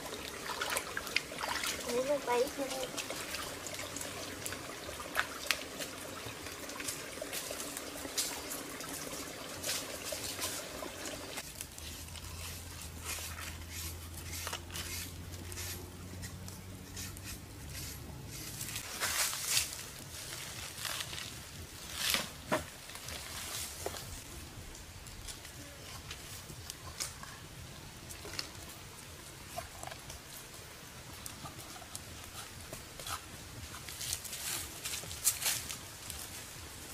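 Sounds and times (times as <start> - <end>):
stream water trickling: 0.0 - 15.6.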